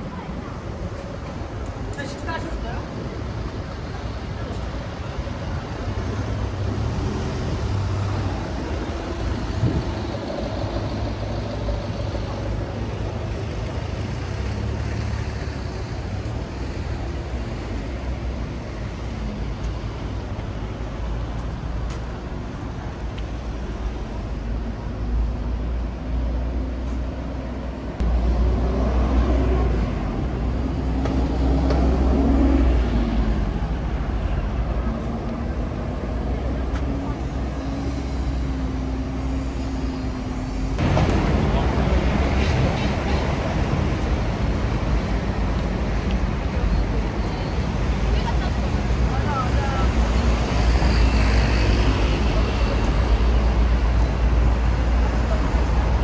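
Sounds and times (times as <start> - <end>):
road traffic rumble: 0.0 - 56.0
people talking: 1.8 - 3.2, 40.8 - 43.5, 46.5 - 50.1.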